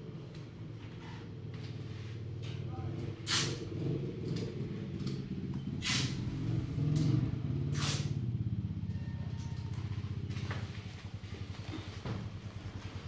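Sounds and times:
motor engine running: 0:00.0 - 0:13.0
short bursts of hissing: 0:03.3 - 0:03.6, 0:05.8 - 0:06.2, 0:07.8 - 0:08.2.

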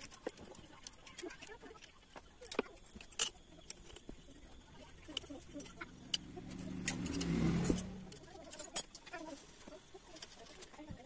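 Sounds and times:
low hum: 0:04.2 - 0:08.7.

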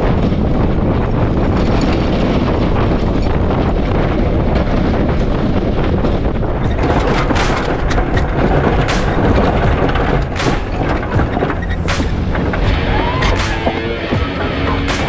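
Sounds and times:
truck engine: 0:00.0 - 0:15.0
wind on microphone: 0:00.0 - 0:15.0
sharp knocks: 0:06.6 - 0:15.0.

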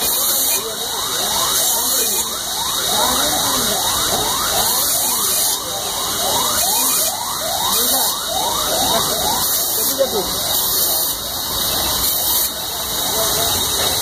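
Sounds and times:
machine hiss: 0:08.8 - 0:14.0.

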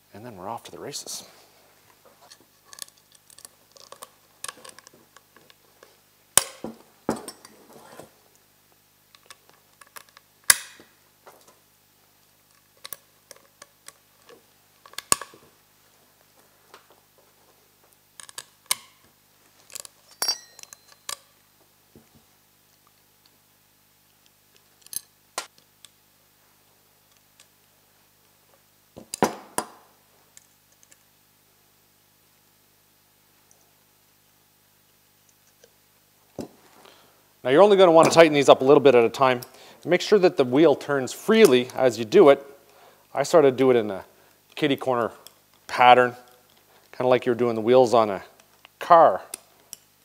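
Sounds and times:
metal screws and wrench clinking: 0:19.7 - 0:21.2.

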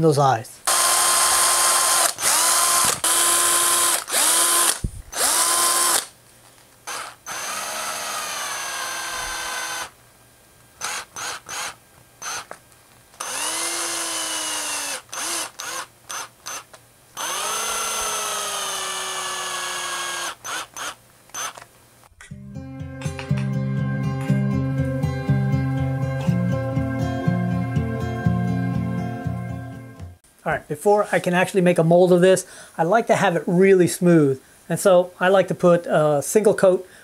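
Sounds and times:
cordless drill running: 0:00.7 - 0:06.1, 0:06.9 - 0:10.0, 0:10.8 - 0:12.6, 0:13.2 - 0:21.6.

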